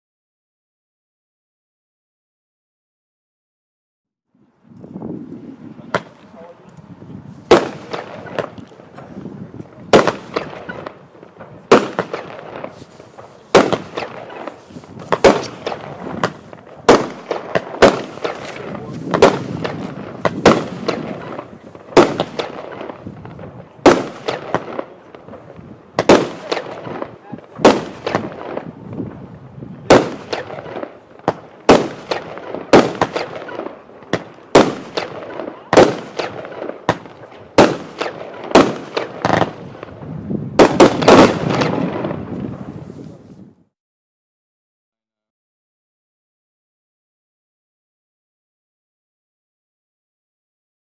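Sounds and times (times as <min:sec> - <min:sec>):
firework bangs: 0:05.7 - 0:06.6, 0:07.4 - 0:43.2.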